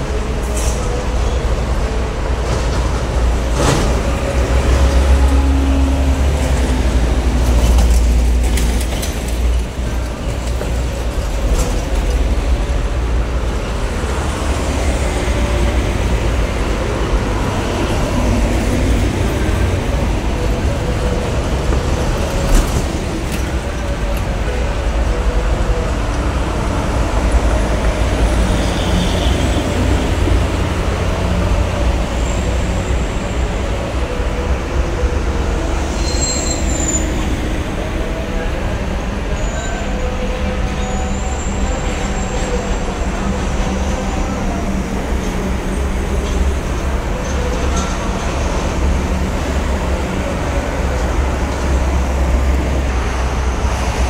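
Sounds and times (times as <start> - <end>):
heavy traffic rumble: 0.0 - 54.0
high squeals: 35.9 - 37.5.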